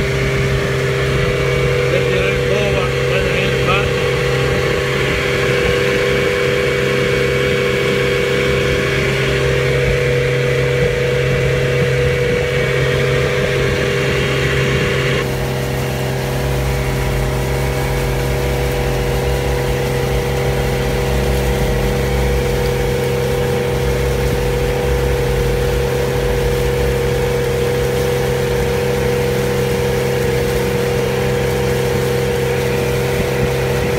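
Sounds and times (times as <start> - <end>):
outboard motor running: 0.0 - 33.9.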